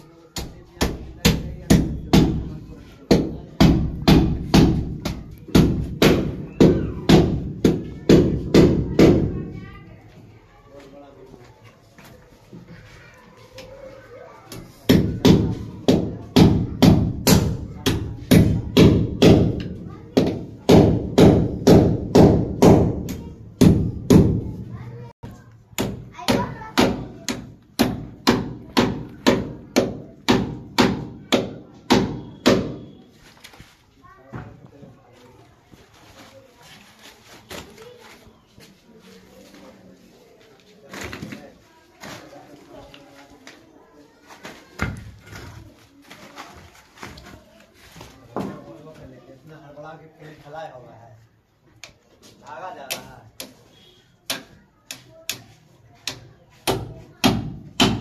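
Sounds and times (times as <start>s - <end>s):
hammer striking brick wall: 0.4s - 9.4s, 14.9s - 24.5s, 25.8s - 33.0s, 54.2s - 58.0s.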